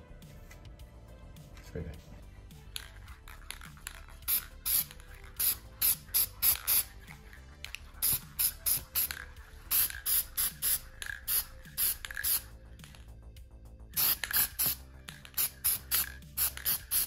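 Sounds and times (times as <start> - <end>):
spray paint can hissing: 2.8 - 13.0, 14.0 - 17.0.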